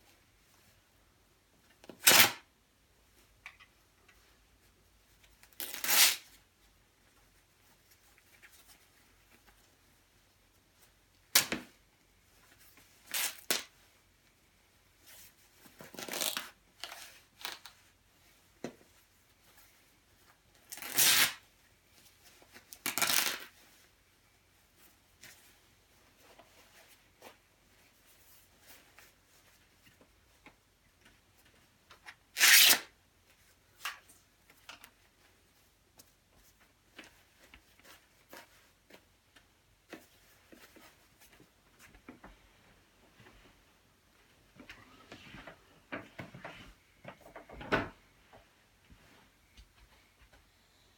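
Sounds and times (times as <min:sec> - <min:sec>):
fabric tearing: 0:02.0 - 0:02.4, 0:05.6 - 0:06.3, 0:13.1 - 0:13.7, 0:15.9 - 0:16.5, 0:20.7 - 0:21.4, 0:22.8 - 0:23.5, 0:32.4 - 0:32.9.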